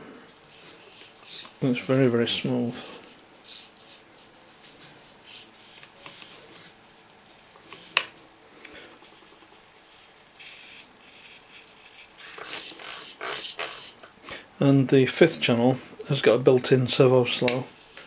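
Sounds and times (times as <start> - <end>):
servos whirring: 0.4 - 4.2, 5.2 - 8.1, 9.0 - 14.0.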